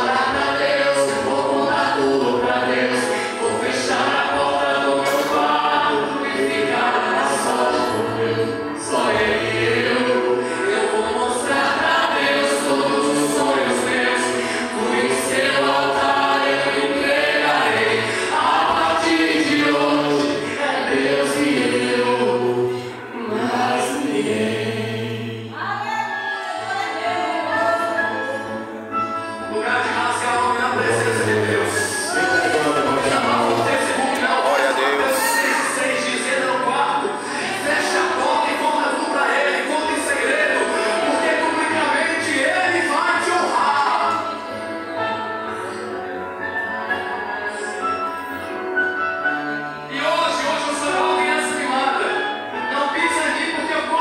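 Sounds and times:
musical accompaniment: 0.0s - 54.0s
man singing into microphone: 29.5s - 44.5s.

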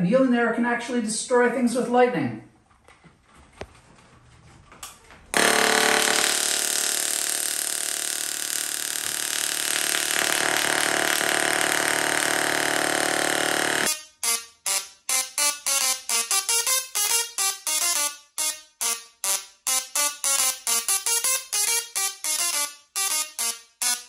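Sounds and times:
electric arc buzzing: 5.3s - 24.0s.

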